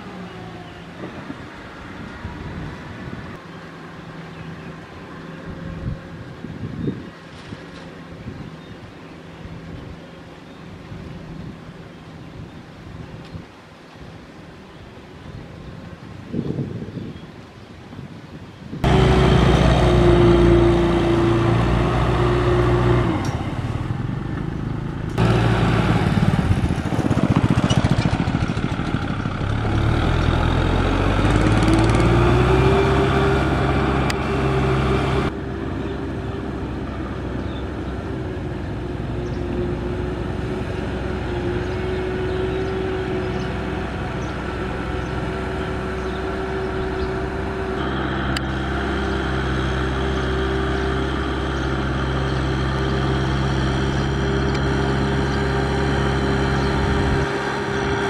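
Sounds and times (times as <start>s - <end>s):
tractor diesel engine revving: 18.8s - 58.0s.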